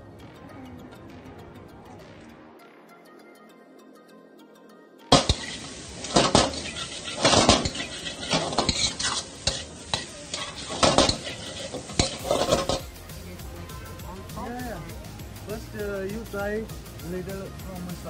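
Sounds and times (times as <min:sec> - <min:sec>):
metal spatula clanging on wok: 0:05.1 - 0:13.0
food sizzling: 0:05.1 - 0:18.0.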